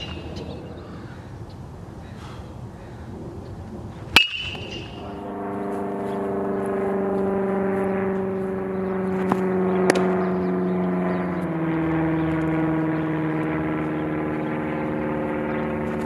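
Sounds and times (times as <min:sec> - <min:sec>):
steady engine drone: 0:00.0 - 0:16.0
metal bat pinging a ball: 0:04.1 - 0:05.2, 0:09.1 - 0:10.2
ball popping into a mitt: 0:09.2 - 0:10.1.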